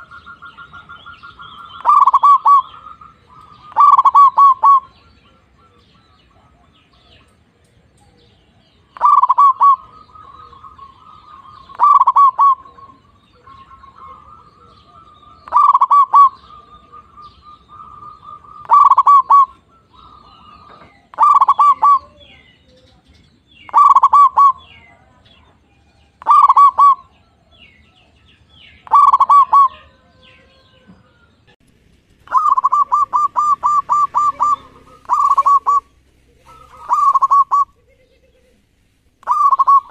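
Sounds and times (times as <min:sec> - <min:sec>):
bird rapid note run: 0:00.0 - 0:05.1, 0:09.0 - 0:22.0, 0:28.6 - 0:29.8, 0:32.1 - 0:37.7, 0:39.2 - 0:39.9
doves cooing: 0:00.0 - 0:39.9.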